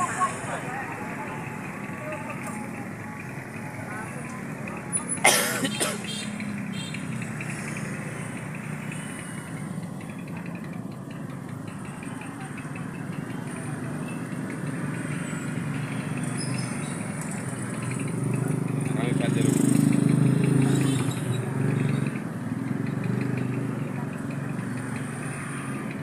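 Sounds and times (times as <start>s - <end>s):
road traffic: 0.0s - 26.0s.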